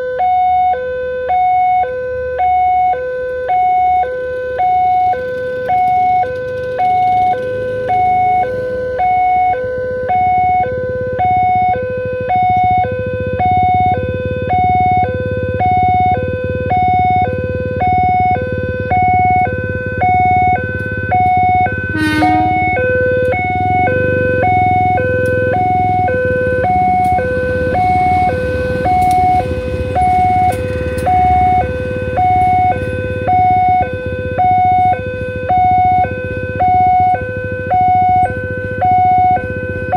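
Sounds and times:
two-tone level crossing alarm: 0:00.0 - 0:39.9
train rumbling past: 0:06.4 - 0:09.0, 0:20.6 - 0:33.4.

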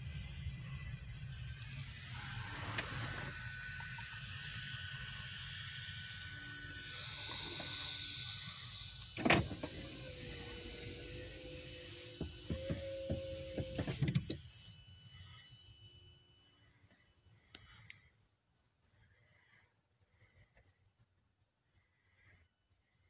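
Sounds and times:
power window motor whirring: 0:01.7 - 0:03.8, 0:06.3 - 0:14.7
window stopping thump: 0:12.1 - 0:14.4.

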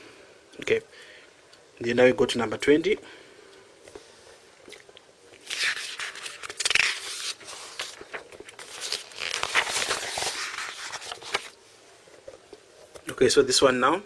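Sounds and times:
paper pages rustling: 0:05.4 - 0:11.6.

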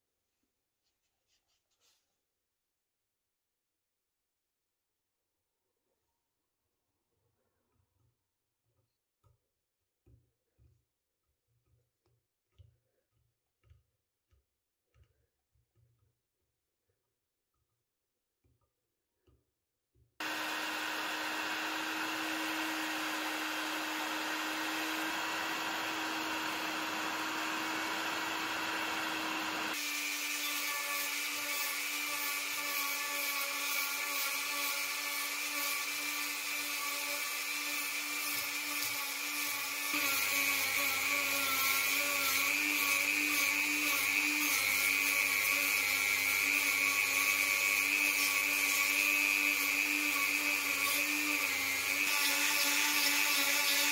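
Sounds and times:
abrasive wheel grinding metal: 0:20.2 - 0:29.8
heat gun blowing: 0:20.2 - 0:53.9
rotary tool whining: 0:20.2 - 0:53.9.

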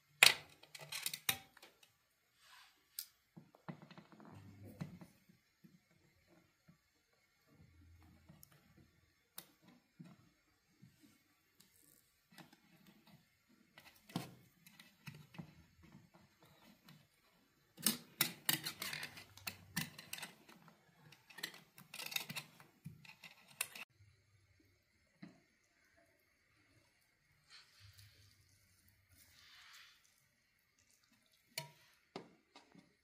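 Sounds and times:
sharp clicks and scrapes: 0:11.6 - 0:23.9.

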